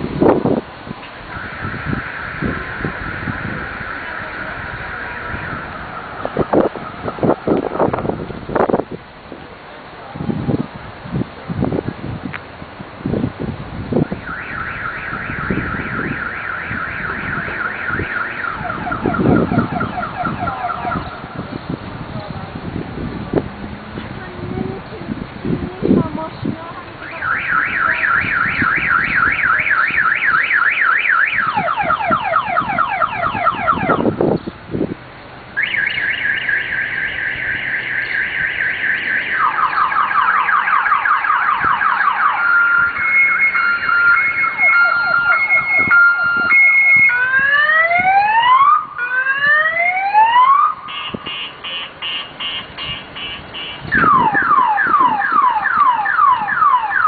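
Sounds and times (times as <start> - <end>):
car alarm siren: 1.3 - 8.2, 14.0 - 21.5, 27.0 - 34.3, 35.6 - 57.0.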